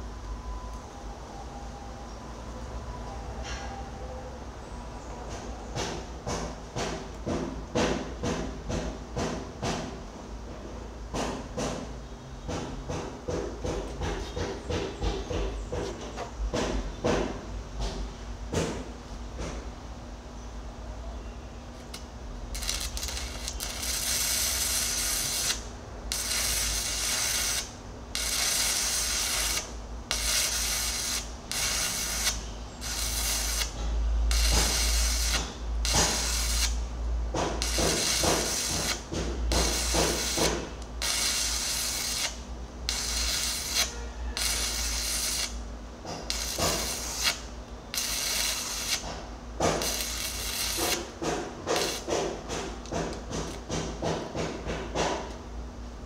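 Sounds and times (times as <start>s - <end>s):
welding arc crackling and sizzling: 21.8s - 36.8s, 37.5s - 49.1s, 49.7s - 52.1s.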